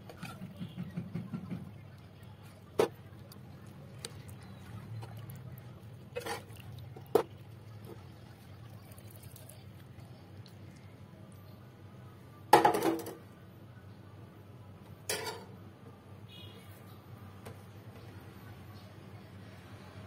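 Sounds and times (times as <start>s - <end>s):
broth being ladled: 0.0s - 11.0s.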